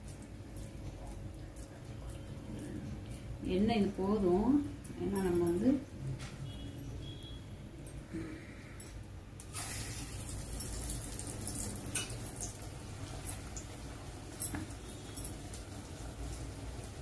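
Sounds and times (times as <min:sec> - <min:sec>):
batter sizzling in hot oil: 0:09.4 - 0:17.0.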